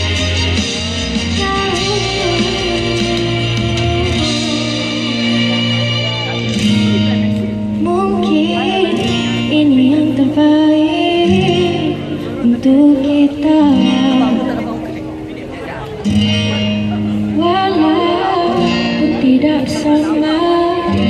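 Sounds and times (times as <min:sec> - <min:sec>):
guitar accompaniment: 0:00.0 - 0:21.0
woman singing into a microphone: 0:01.0 - 0:06.3, 0:07.7 - 0:14.9, 0:17.2 - 0:21.0.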